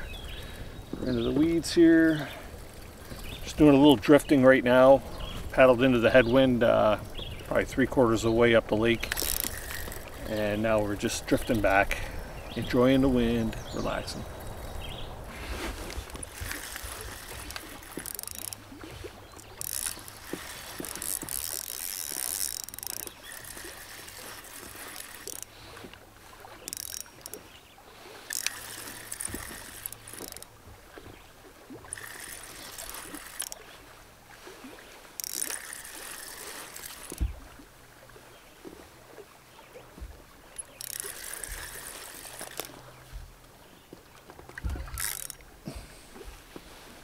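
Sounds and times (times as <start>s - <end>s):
fishing reel cranking: 1.7s - 3.8s, 8.8s - 12.1s, 15.8s - 27.4s, 28.1s - 30.5s, 31.8s - 33.7s, 35.2s - 37.2s, 40.5s - 42.9s, 44.7s - 45.5s.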